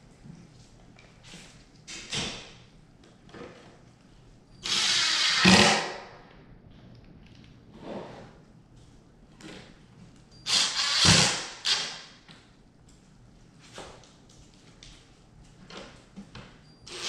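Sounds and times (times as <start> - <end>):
cordless drill driving a screw: 4.6 - 5.9, 10.5 - 12.0.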